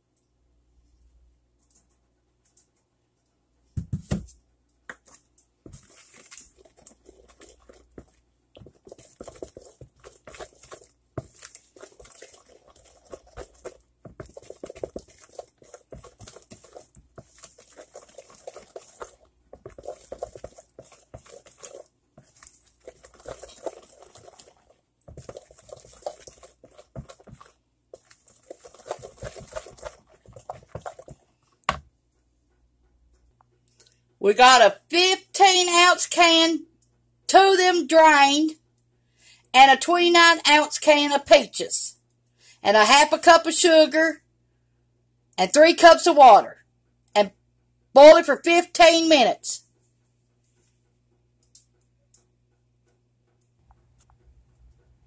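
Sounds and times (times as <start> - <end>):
spoon stirring thick batter: 3.8 - 31.9.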